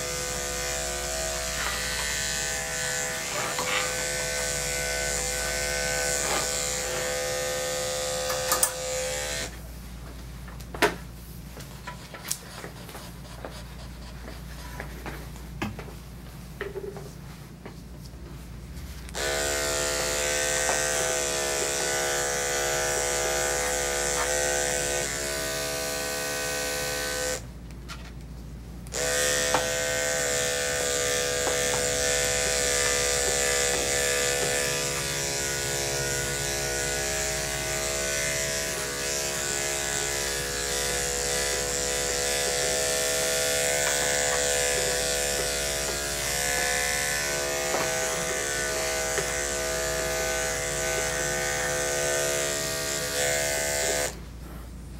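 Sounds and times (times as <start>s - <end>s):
electric clippers humming: 0.0s - 9.6s, 19.1s - 27.5s, 28.9s - 54.3s.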